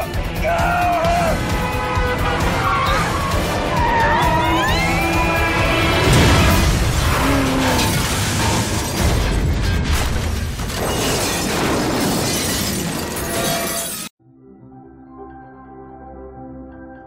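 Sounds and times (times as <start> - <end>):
music: 0.0 - 10.9, 14.1 - 17.0
crunching metal: 5.5 - 14.1
shattering glass: 7.6 - 14.1
faint ambient music: 14.2 - 17.0.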